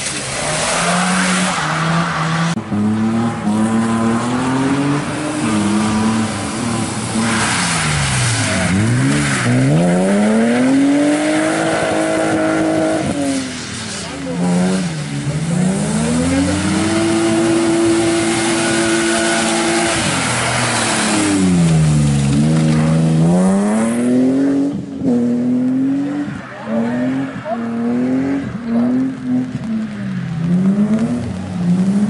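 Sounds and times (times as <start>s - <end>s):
racing car engine revving: 0.0s - 32.0s
tyre hiss on wet road: 13.1s - 15.2s.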